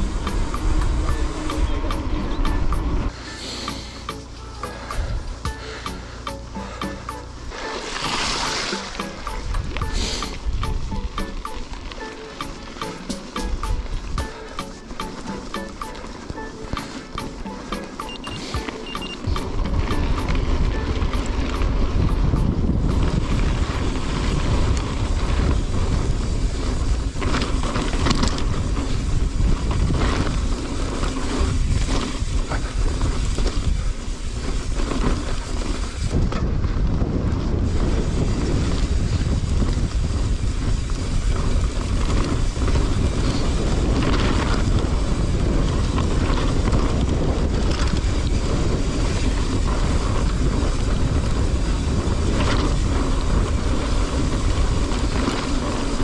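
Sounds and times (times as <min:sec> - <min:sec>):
wind buffeting microphone: 0:00.0 - 0:03.1, 0:19.2 - 0:56.0
tyres rumbling on rough track: 0:00.0 - 0:56.0.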